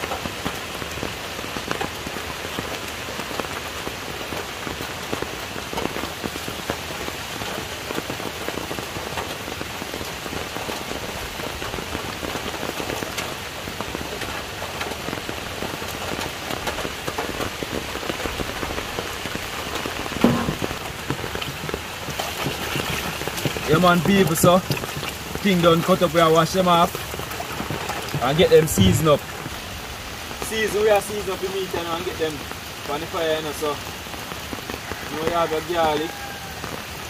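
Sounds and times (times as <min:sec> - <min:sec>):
steady rain pattering: 0:00.0 - 0:37.0
thump: 0:20.2 - 0:20.7.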